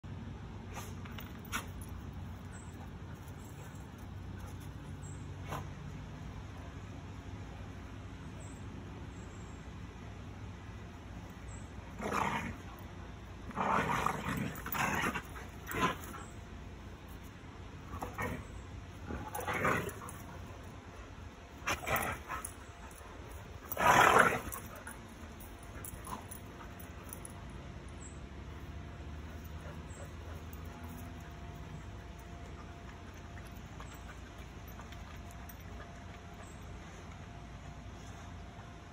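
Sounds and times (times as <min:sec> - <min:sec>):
dogs growling and yipping: 0:11.5 - 0:16.9, 0:17.8 - 0:28.0, 0:28.6 - 0:36.8.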